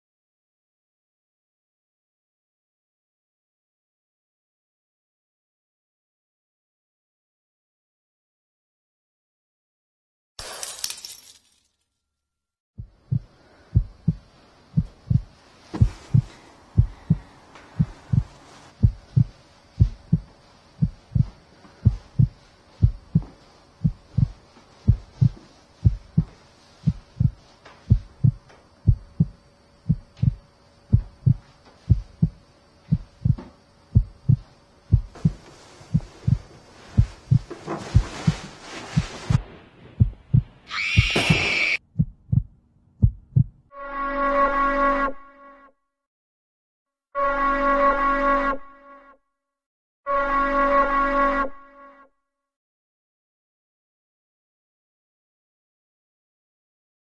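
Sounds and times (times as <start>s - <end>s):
heartbeat thuds: 12.8s - 41.2s, 41.8s - 43.7s.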